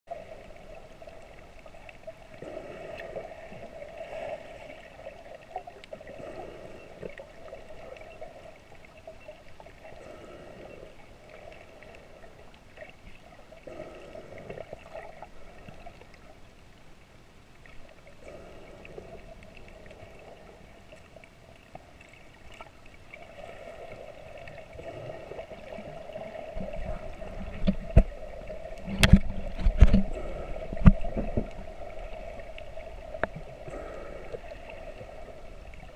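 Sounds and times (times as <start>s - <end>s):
faint whine: 0.1s - 35.9s
muffled underwater hum: 0.1s - 35.9s
water splashing against camera: 24.4s - 35.9s.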